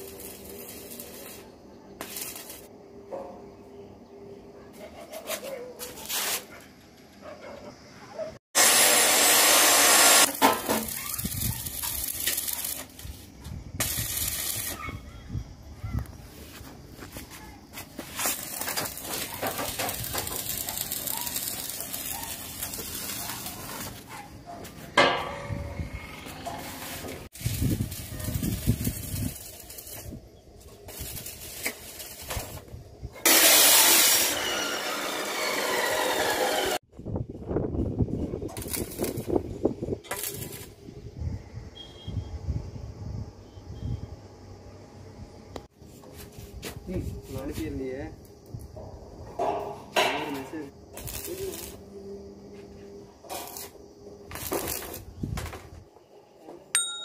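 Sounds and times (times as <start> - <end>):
welding arc hissing and crackling: 0.0 - 2.7, 8.6 - 14.9, 16.0 - 24.1, 26.2 - 36.8, 38.4 - 40.8, 46.2 - 48.4, 50.3 - 51.8, 53.3 - 55.6.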